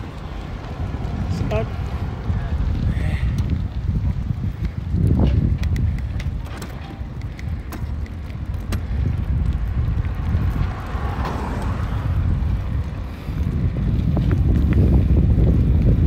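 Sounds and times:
low road rumble: 0:00.0 - 0:16.0
wind buffeting microphone: 0:00.0 - 0:16.0
car passing: 0:07.0 - 0:16.0.

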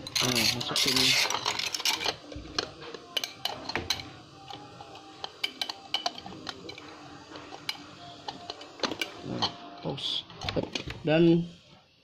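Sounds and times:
glass parts clinking: 0:00.0 - 0:04.6.

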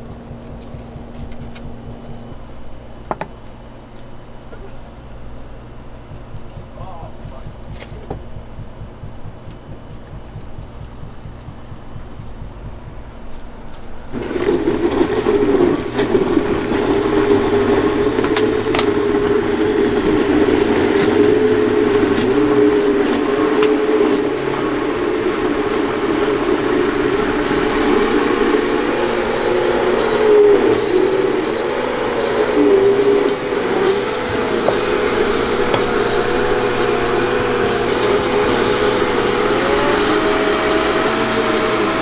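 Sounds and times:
low steady hum: 0:00.0 - 0:42.0
blender motor churning: 0:09.9 - 0:42.0.

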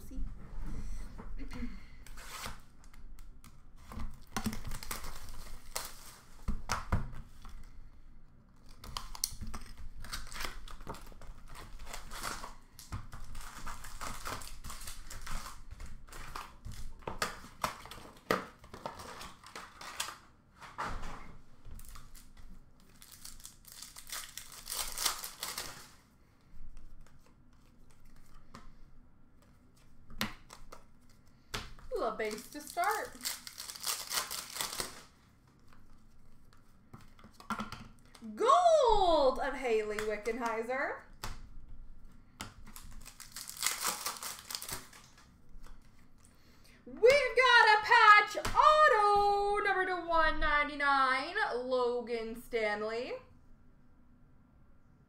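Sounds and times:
wrappers ripping and crinkling: 0:04.2 - 0:06.5, 0:08.6 - 0:20.2, 0:21.8 - 0:26.1, 0:31.9 - 0:36.1, 0:42.6 - 0:46.3
cards clicking and rustling: 0:08.6 - 0:20.3, 0:21.8 - 0:26.0, 0:29.4 - 0:38.2, 0:42.4 - 0:46.4.

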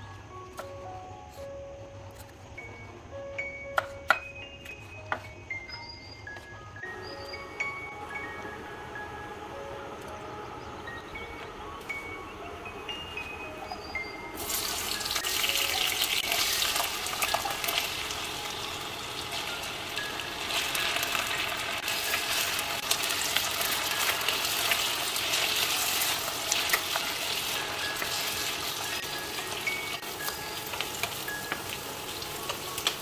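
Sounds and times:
potatoes sizzling in hot oil: 0:14.4 - 0:33.0.

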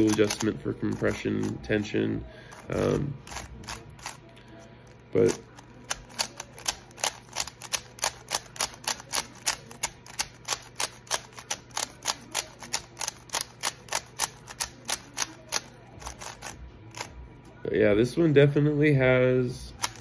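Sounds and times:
puzzle cube layers clicking: 0:00.0 - 0:01.2, 0:05.8 - 0:17.1.

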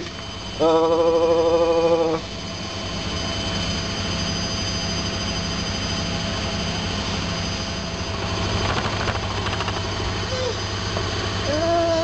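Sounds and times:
washing machine spinning: 0:00.0 - 0:12.0
rapid rattle: 0:08.2 - 0:10.1.

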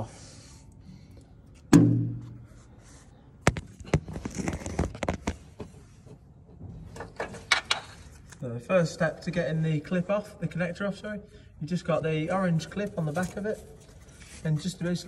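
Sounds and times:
loud knock with low ring: 0:01.7 - 0:02.5.

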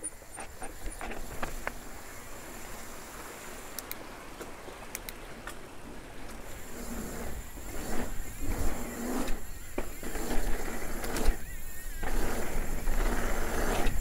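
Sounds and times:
bike tyres on grated bridge: 0:05.4 - 0:14.0
wind on microphone: 0:06.0 - 0:14.0
bike tyres on concrete: 0:06.6 - 0:14.0.

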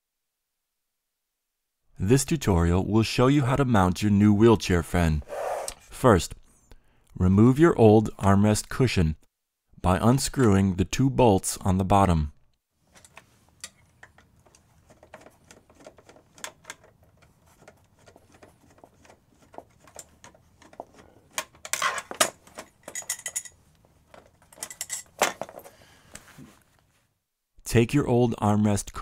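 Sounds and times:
metal clinking rattles: 0:21.6 - 0:25.7.

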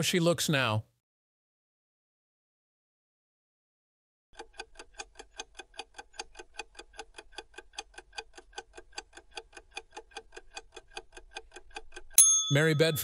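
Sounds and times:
clock ticking rapidly: 0:04.3 - 0:13.0.

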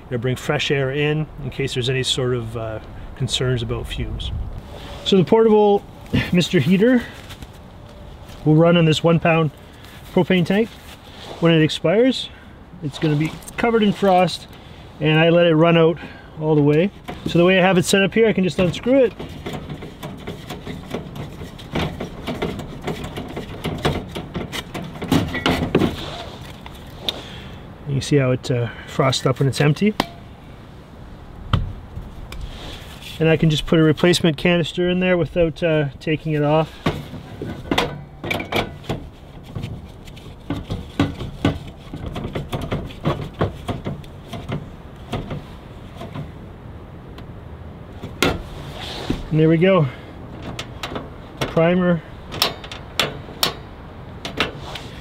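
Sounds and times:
metal and plastic bumping: 0:16.5 - 0:26.9, 0:30.0 - 0:30.3, 0:36.6 - 0:46.4, 0:48.0 - 0:49.3, 0:50.3 - 0:54.8
metallic clicks and scrapes: 0:16.6 - 0:27.2, 0:50.4 - 0:55.0.

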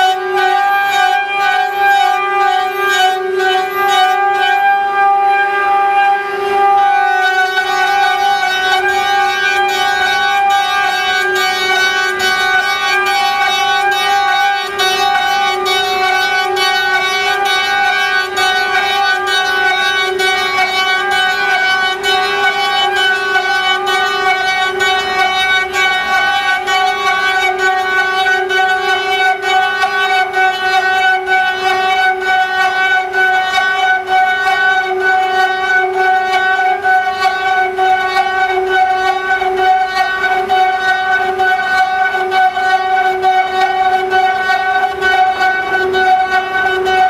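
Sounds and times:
machine spindles whining: 0:00.0 - 0:47.0.

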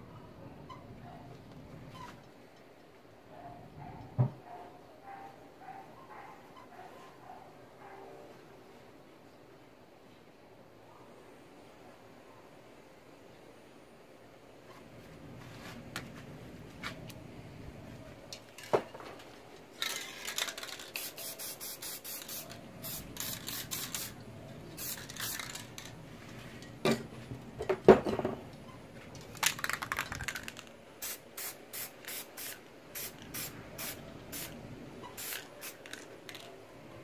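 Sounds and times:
spray paint can hissing: 0:19.8 - 0:24.2, 0:24.8 - 0:25.9, 0:29.5 - 0:36.5.

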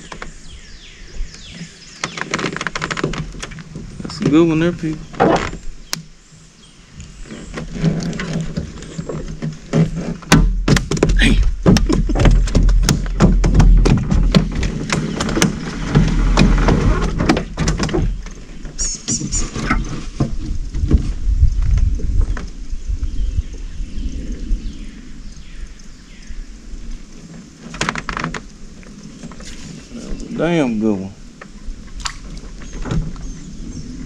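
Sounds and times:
thunks and knocks in boat: 0:02.0 - 0:05.6, 0:07.5 - 0:22.5, 0:32.0 - 0:33.4.

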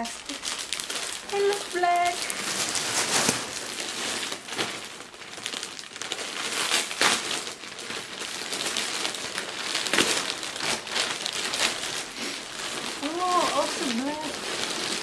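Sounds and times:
plastic packaging crinkling: 0:00.0 - 0:15.0.

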